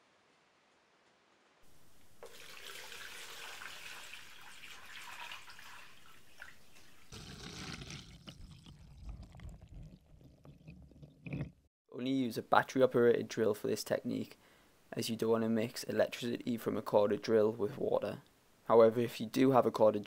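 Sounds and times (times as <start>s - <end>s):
water pouring and splashing: 2.1s - 11.6s.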